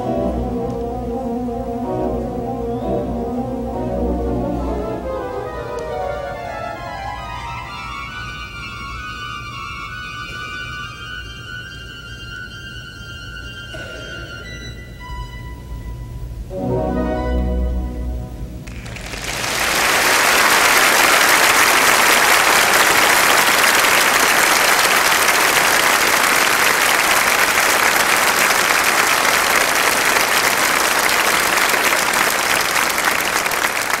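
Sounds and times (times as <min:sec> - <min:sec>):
pipe organ chord: 0:00.0 - 0:33.9
audience applause: 0:18.6 - 0:34.0.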